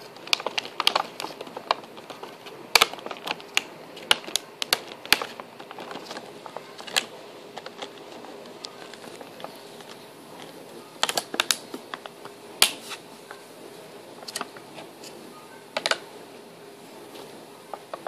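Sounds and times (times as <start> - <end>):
puppy chewing plastic container: 0.0 - 12.1.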